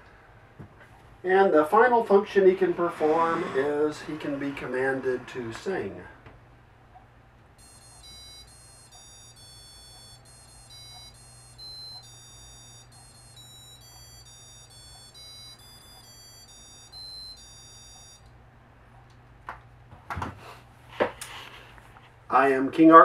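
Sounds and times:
piezo speaker beeping a tune: 0:07.6 - 0:18.3.

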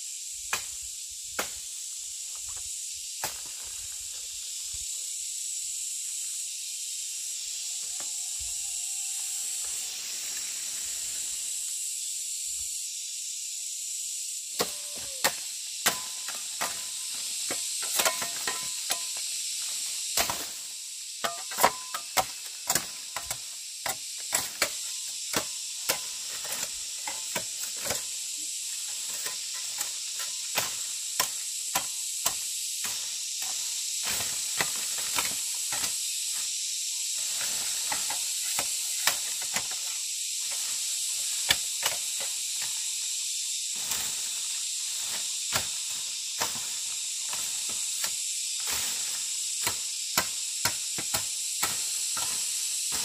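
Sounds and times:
forest insects droning: 0:00.0 - 0:53.0.

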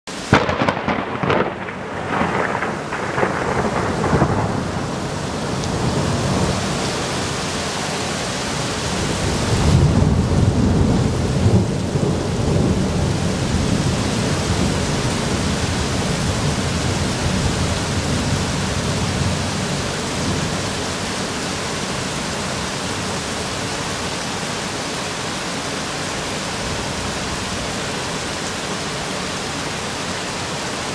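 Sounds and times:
heavy rain hissing: 0:00.1 - 0:30.9
thunder cracks and rumble: 0:00.3 - 0:06.6, 0:09.2 - 0:19.6.

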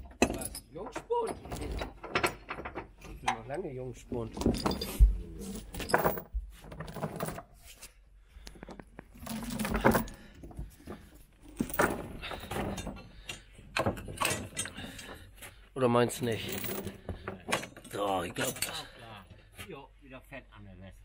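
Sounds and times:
chain links clanking: 0:00.0 - 0:03.4, 0:04.2 - 0:07.6, 0:09.1 - 0:15.4, 0:16.0 - 0:19.2.

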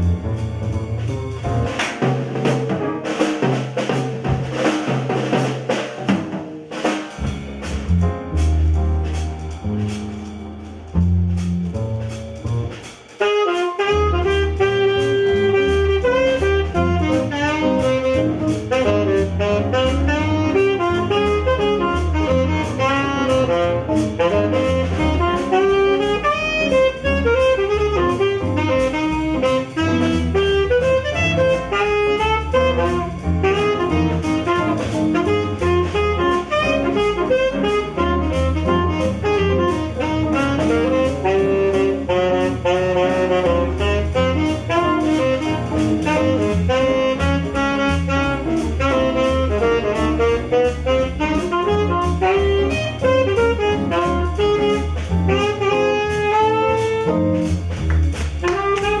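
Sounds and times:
double bass: 0:00.0 - 0:59.0
drums: 0:00.0 - 0:59.0
piano: 0:00.0 - 0:59.0
saxophone melody: 0:13.2 - 0:57.8, 0:58.4 - 0:59.0.

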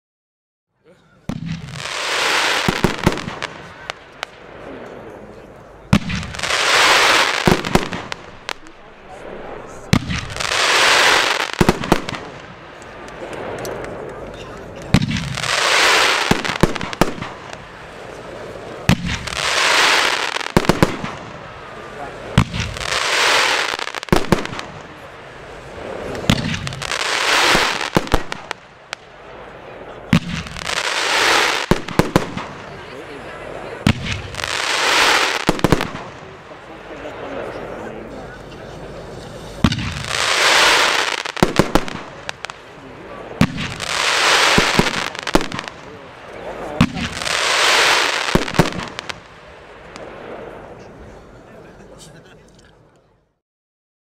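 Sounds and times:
firework cracks: 0:01.3 - 0:05.2, 0:05.8 - 0:33.1, 0:33.8 - 0:37.2, 0:39.5 - 0:50.8
firework launch bang: 0:05.9 - 0:12.6, 0:25.8 - 0:28.6, 0:39.6 - 0:42.6, 0:43.4 - 0:45.9
fireworks launch thump: 0:09.4 - 0:10.4, 0:25.8 - 0:26.8, 0:39.6 - 0:40.7, 0:46.8 - 0:47.2.

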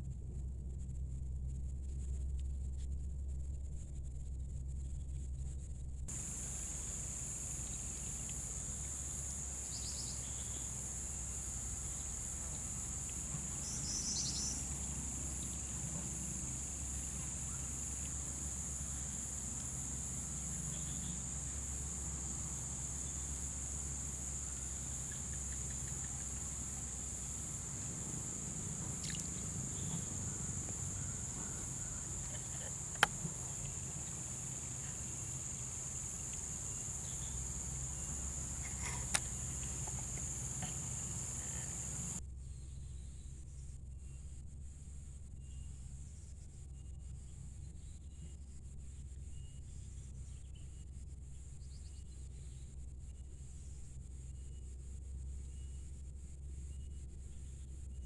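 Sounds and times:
insects droning: 0:06.1 - 0:42.2.

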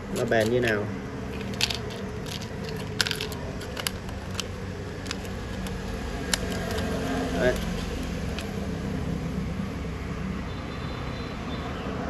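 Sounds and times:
stiff plastic packaging crinkling: 0:01.4 - 0:08.6.

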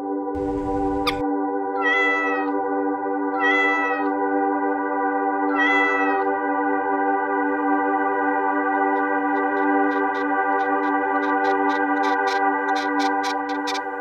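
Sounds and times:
background music: 0:00.0 - 0:14.0
cat meowing: 0:01.8 - 0:02.6, 0:03.3 - 0:04.2, 0:05.5 - 0:06.3.

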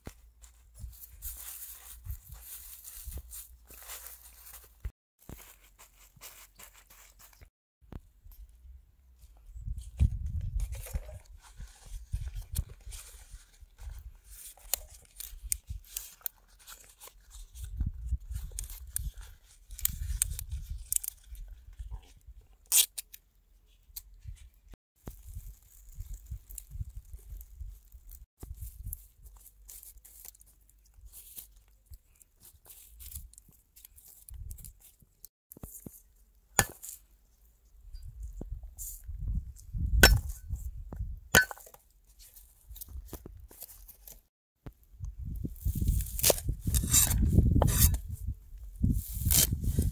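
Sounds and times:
food tearing and cutting: 0:45.8 - 0:48.0, 0:49.1 - 0:49.7.

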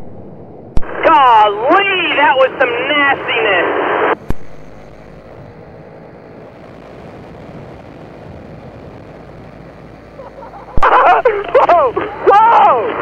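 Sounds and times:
paramotor engine drone: 0:03.8 - 0:13.0.

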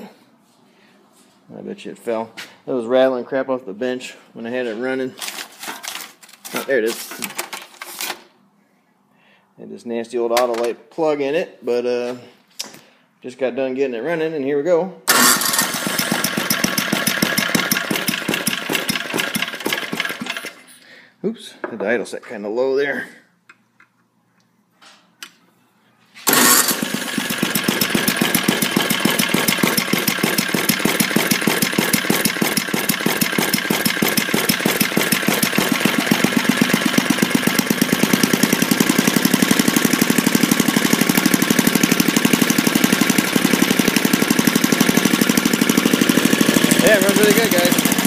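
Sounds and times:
small engine running: 0:15.1 - 0:20.6, 0:26.3 - 0:48.0.

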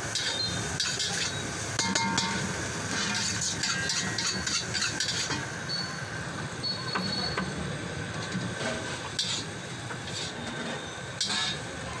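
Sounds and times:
burner flame rumble and hiss: 0:00.0 - 0:12.0
metal ladle scraping a wok: 0:02.2 - 0:05.5, 0:08.2 - 0:11.7.

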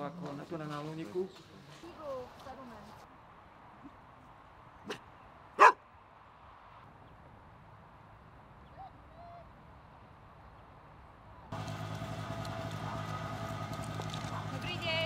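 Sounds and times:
dog barking: 0:05.6 - 0:05.8.

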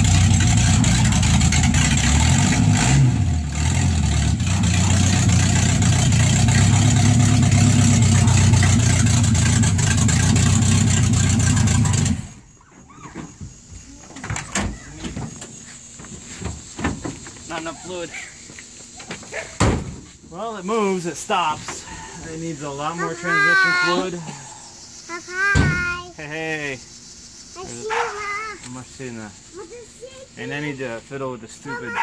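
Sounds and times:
car engine idling: 0:00.0 - 0:12.6.

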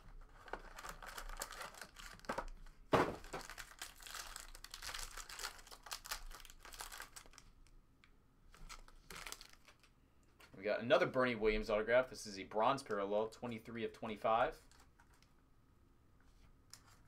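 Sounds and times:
plastic wrapper tearing and crinkling: 0:00.2 - 0:07.7, 0:08.5 - 0:09.9.

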